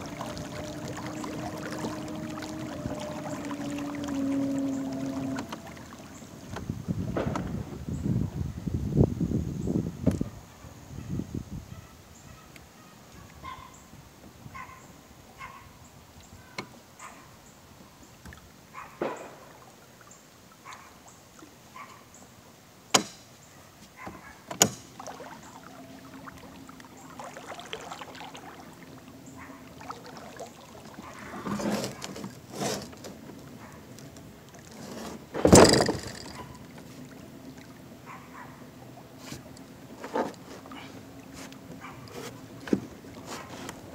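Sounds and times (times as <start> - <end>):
electric motor hum: 0.0 - 5.9
water against hull: 0.0 - 8.7, 23.5 - 43.9.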